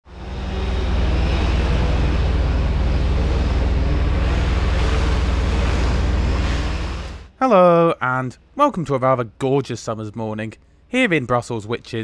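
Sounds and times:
vehicle engine rumble: 0.0s - 7.3s.

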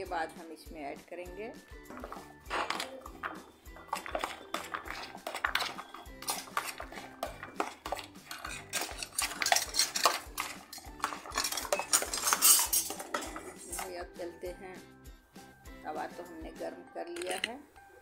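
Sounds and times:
spoon scraping plastic bowl: 1.9s - 14.0s.

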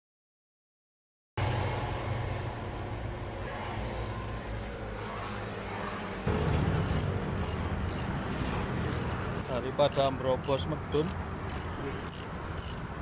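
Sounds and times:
engine humming: 6.2s - 13.0s
sharp ticking: 6.3s - 13.0s.

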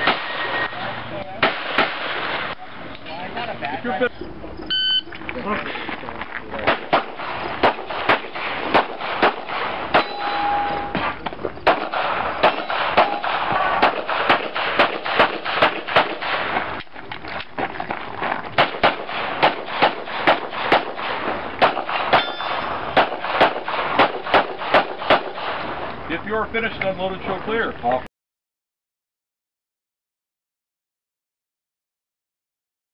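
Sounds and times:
pistol shots: 0.0s - 0.7s, 1.4s - 2.6s, 6.6s - 16.7s, 18.6s - 25.8s.

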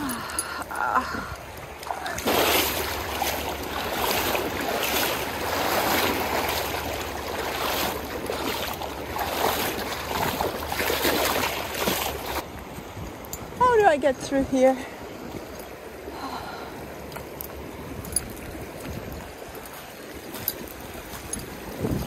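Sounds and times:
river current rushing: 0.0s - 22.0s
feet splashing through water: 1.2s - 12.7s, 15.0s - 22.0s.

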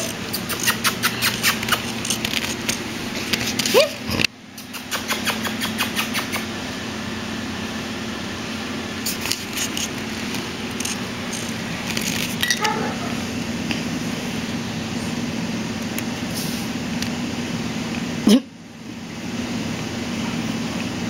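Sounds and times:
puppy claws clicking on tile: 0.0s - 3.7s, 9.1s - 12.8s
room hum: 0.0s - 21.0s.

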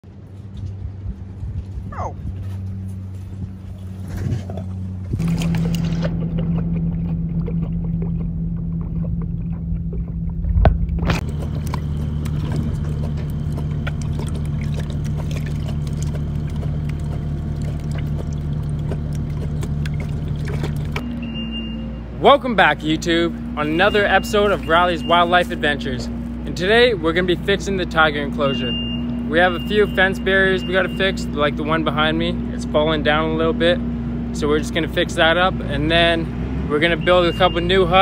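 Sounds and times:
low motor hum: 0.0s - 38.0s
tiger lapping water: 3.8s - 21.8s, 22.6s - 32.7s.

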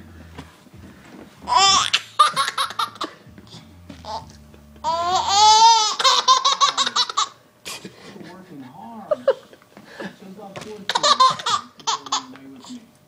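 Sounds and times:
baby laughing and squealing: 1.5s - 3.1s, 4.8s - 7.4s, 10.9s - 12.4s.

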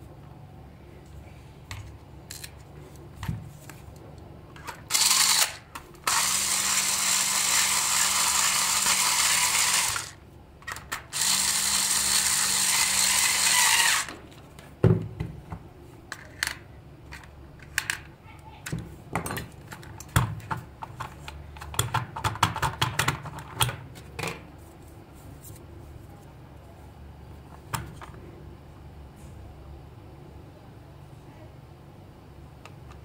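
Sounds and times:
electric screwdriver whirring: 4.9s - 10.2s, 11.1s - 14.2s.

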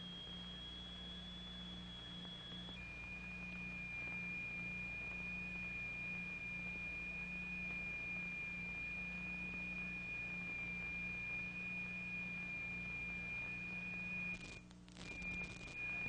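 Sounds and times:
clicks: 0.0s - 2.9s
high-pitched sine tone: 0.0s - 16.0s
low electrical hum: 0.0s - 16.0s.

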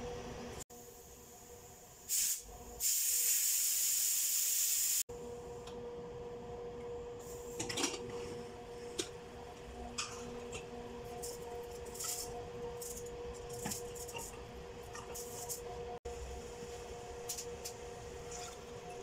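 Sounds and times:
steady low hum: 5.1s - 19.0s.

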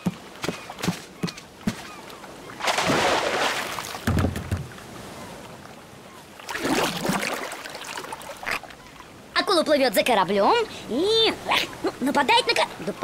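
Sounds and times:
waves washing: 0.0s - 13.0s
low water splash: 2.5s - 5.6s, 6.4s - 8.6s.

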